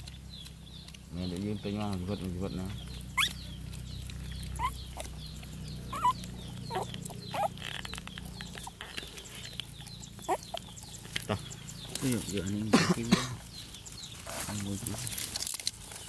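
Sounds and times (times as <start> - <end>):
steady low hum: 0.0 - 14.2
puppies whimpering: 2.0 - 11.9.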